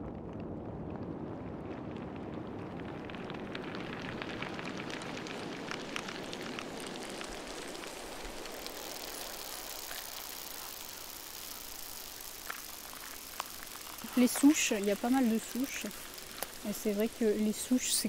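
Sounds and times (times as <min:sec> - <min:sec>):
dense crackling and clicks: 0:00.0 - 0:18.0
low rumbling hiss: 0:00.0 - 0:18.0
high hiss: 0:06.6 - 0:18.0.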